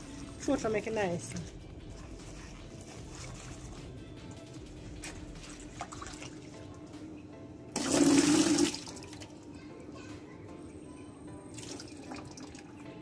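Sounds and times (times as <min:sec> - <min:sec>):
water splashing into a tub: 0:05.0 - 0:06.6, 0:07.8 - 0:09.3, 0:11.5 - 0:12.7.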